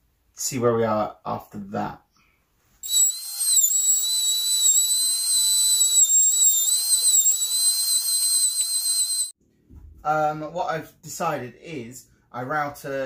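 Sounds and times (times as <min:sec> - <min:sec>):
router whining cutting wood: 0:02.8 - 0:09.3.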